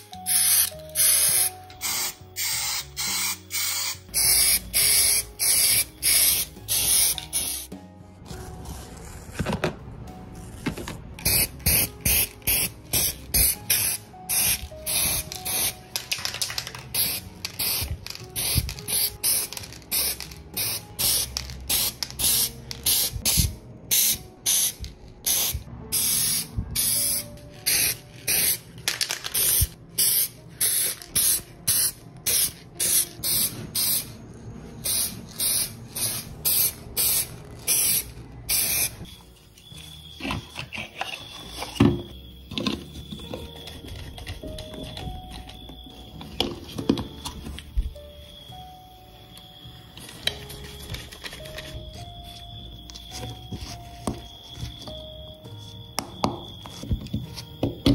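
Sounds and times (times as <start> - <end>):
spray paint can hissing: 0.0 - 7.7, 11.2 - 34.2, 34.8 - 39.1.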